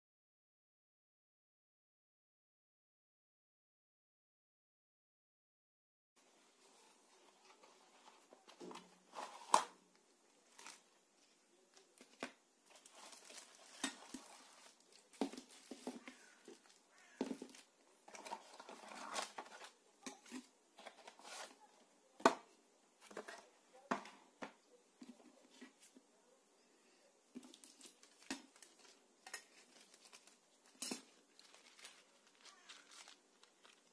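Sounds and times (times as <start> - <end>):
packaging rustling and crinkling: 10.4 - 21.7, 27.4 - 33.9.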